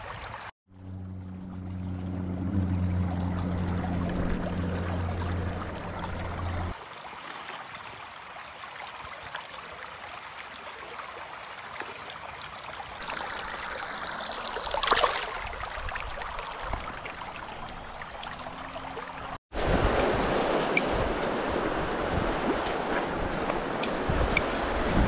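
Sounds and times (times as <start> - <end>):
river water over stones: 0.0 - 25.0
water splash: 13.0 - 25.0.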